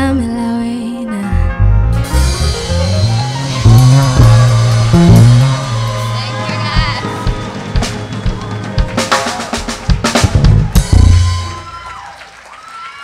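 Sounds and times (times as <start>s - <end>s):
deep low note: 1.4s - 7.5s
live band drum kit: 2.0s - 12.2s.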